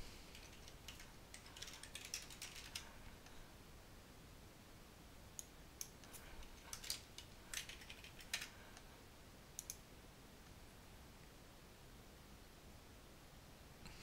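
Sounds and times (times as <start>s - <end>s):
computer keyboard typing: 0.3s - 3.0s, 5.8s - 8.8s, 9.6s - 9.8s.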